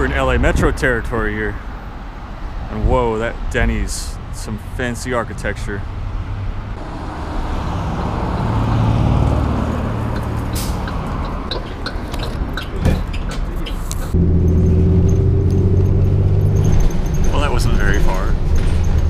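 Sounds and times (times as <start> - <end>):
passing traffic: 0.0 - 19.0
bus engine drone: 5.8 - 19.0
bus pulling up: 6.1 - 19.0.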